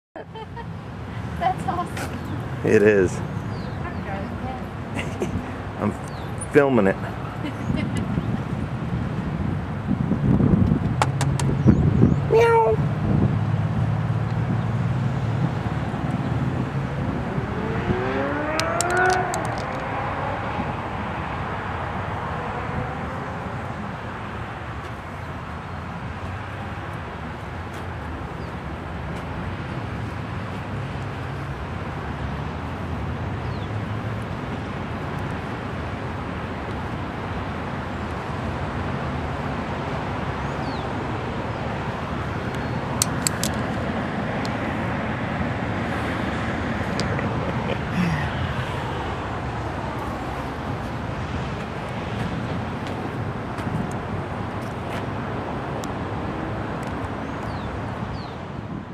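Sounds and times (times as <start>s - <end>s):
rising whine: 15.3s - 21.6s.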